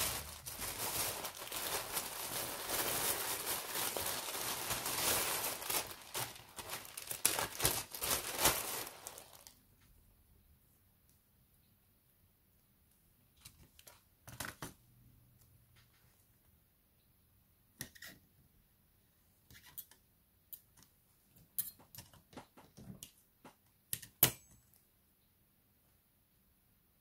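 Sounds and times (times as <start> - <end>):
clicks and taps of small tools: 21.6 - 24.8.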